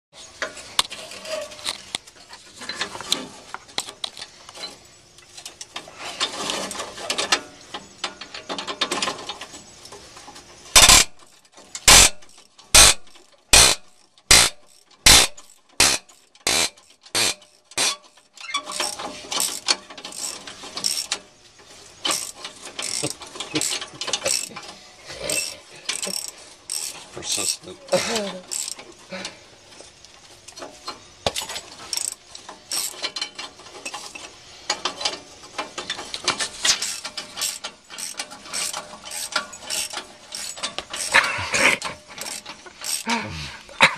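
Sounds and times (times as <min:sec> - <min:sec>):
socket ratchet wrench clicking: 0:10.8 - 0:11.2, 0:11.8 - 0:18.2, 0:25.4 - 0:27.0, 0:28.5 - 0:28.8, 0:36.8 - 0:41.2, 0:42.2 - 0:43.1.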